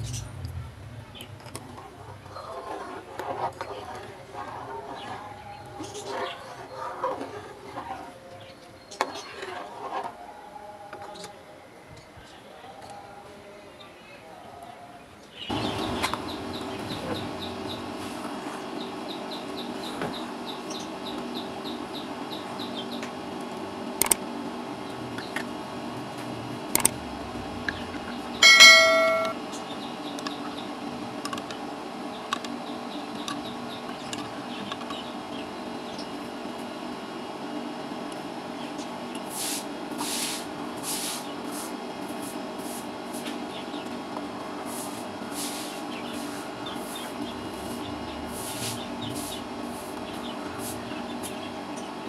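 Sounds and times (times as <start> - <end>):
ladle clanging on pan: 28.4 - 29.4
metal ladle clinking on pan: 28.4 - 29.4.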